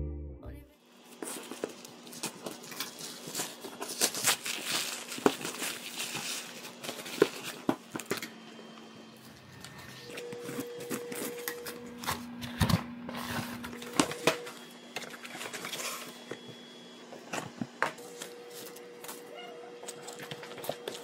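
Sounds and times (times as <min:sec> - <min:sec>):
plastic wrapping crinkling and tearing: 0:01.1 - 0:08.3
scissors cutting packing tape: 0:01.2 - 0:08.3.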